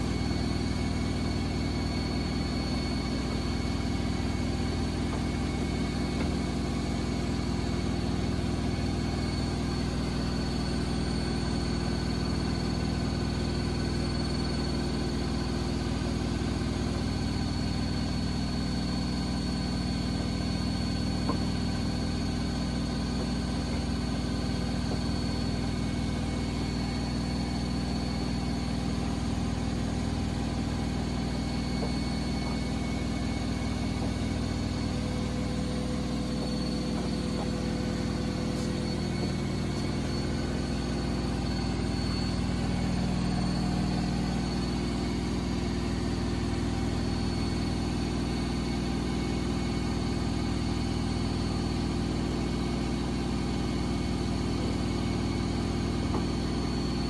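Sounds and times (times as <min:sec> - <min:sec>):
thin high whine: 0:00.0 - 0:57.0
washing machine spin hum: 0:00.0 - 0:57.0.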